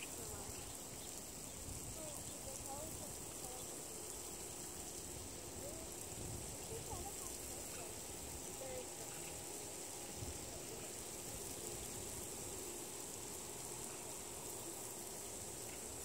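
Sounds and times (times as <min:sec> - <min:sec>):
high-pitched hiss: 0:00.0 - 0:16.0
wind rumble on microphone: 0:01.4 - 0:03.6, 0:05.2 - 0:07.8, 0:10.1 - 0:10.6.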